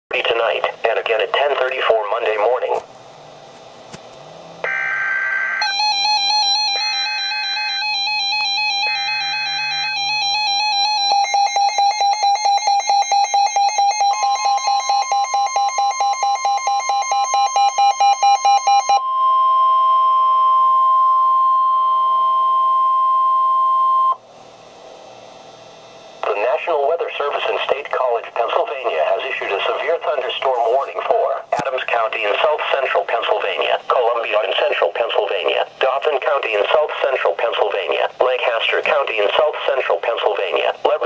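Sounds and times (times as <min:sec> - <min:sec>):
steady high warning tone: 0:04.4 - 0:24.2
warbling alarm: 0:04.6 - 0:24.2.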